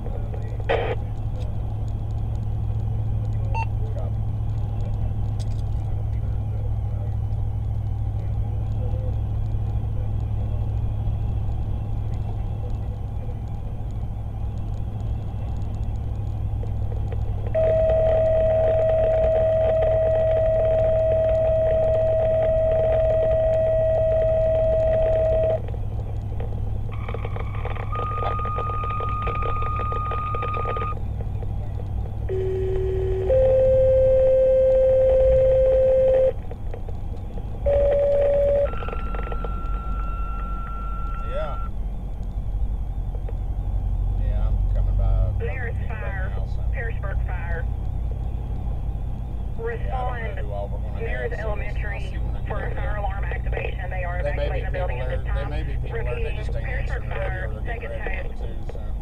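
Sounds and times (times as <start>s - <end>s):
vehicle and road rumble: 0.0s - 59.0s
radio paging tones: 0.6s - 1.1s, 17.5s - 25.7s, 26.9s - 31.1s, 32.3s - 36.4s, 37.6s - 41.8s.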